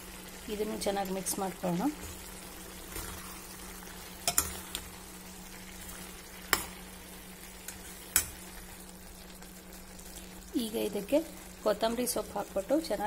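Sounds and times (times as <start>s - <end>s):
soft frying: 0.0s - 13.0s.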